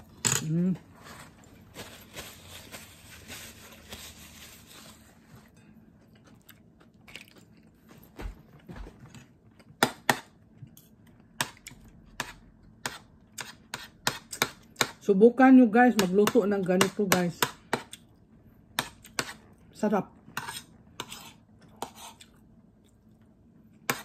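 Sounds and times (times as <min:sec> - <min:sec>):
paper napkin rustling: 0:01.0 - 0:05.4
chewing: 0:06.0 - 0:07.8.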